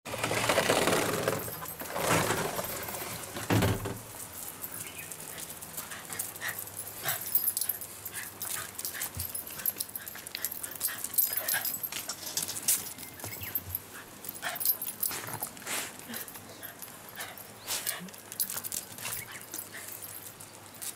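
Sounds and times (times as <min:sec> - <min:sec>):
loud rustle: 0:00.1 - 0:06.6.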